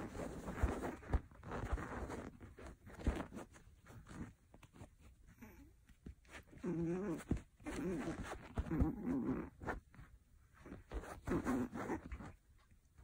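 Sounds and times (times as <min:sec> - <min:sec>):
puppy growling: 0:06.4 - 0:12.4.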